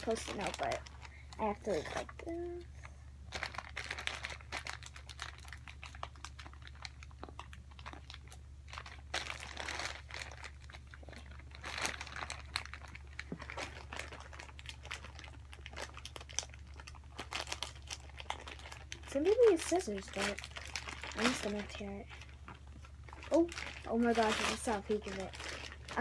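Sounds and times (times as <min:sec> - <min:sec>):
plastic bag crinkling: 0:00.0 - 0:26.0.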